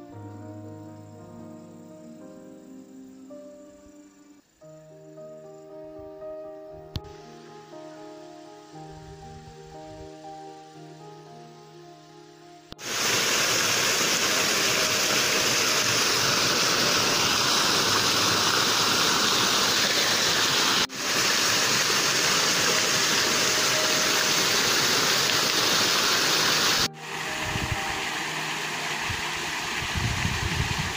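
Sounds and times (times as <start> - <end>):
waterfall rushing into pond: 12.8 - 30.9.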